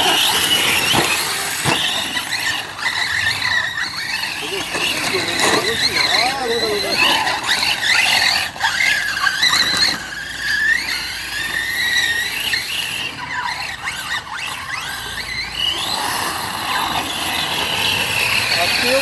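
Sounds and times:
electric motors whining high: 0:00.0 - 0:19.0.

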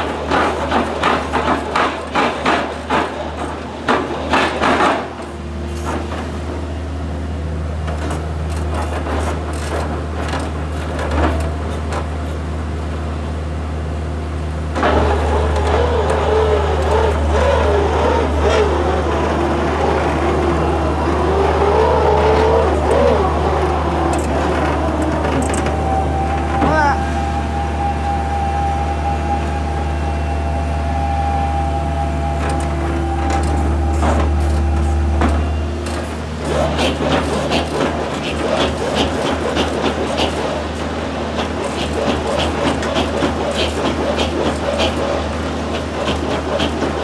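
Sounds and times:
drilling rig engine humming: 0:00.0 - 0:47.0
auger whining: 0:14.6 - 0:47.0.

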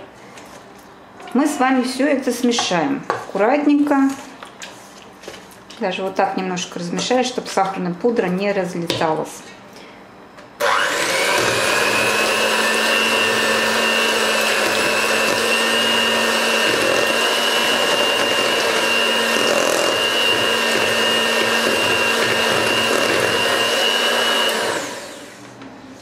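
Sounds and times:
electric hand mixer whining: 0:10.6 - 0:25.5
beaters whisking thick mix: 0:10.9 - 0:25.1.

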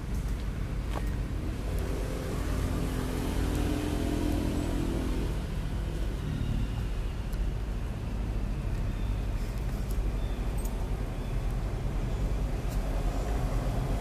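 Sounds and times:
motor vehicle passing: 0:01.3 - 0:07.6.

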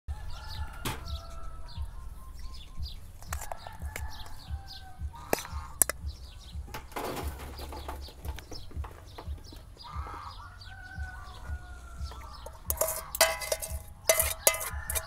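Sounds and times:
small birds chirping: 0:00.1 - 0:15.0
metal spoon clinking on pot: 0:12.4 - 0:15.0.

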